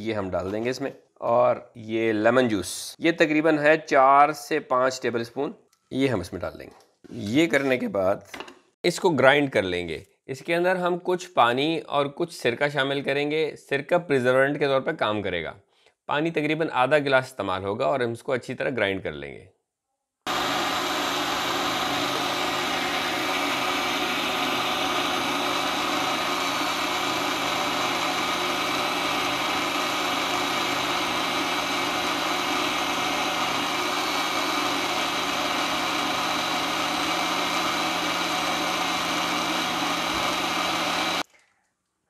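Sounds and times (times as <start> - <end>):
electric blender running: 20.3 - 41.3.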